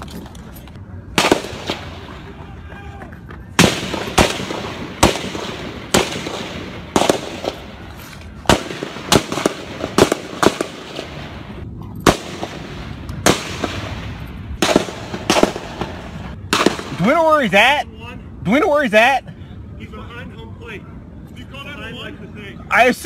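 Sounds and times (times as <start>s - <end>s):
rifle shots with echo: 1.2s - 2.3s, 3.6s - 17.2s.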